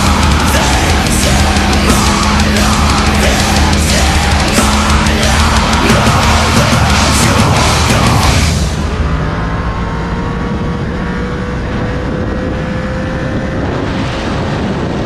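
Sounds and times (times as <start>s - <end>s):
motorcycle engine accelerating: 0.0s - 15.0s
wind rushing over microphone: 8.2s - 15.0s.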